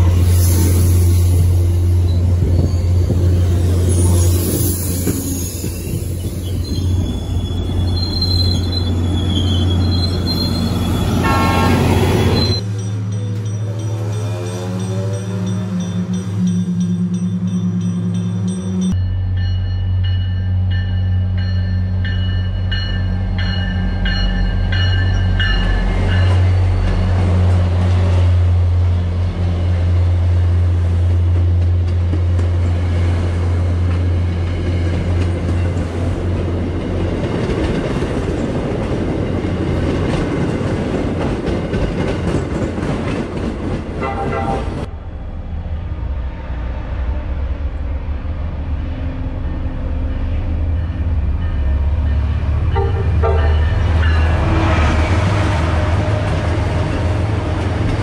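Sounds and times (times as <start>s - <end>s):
train rushing past: 0.0s - 58.0s
train horn blasts: 11.2s - 12.6s, 44.0s - 44.9s, 52.7s - 56.3s.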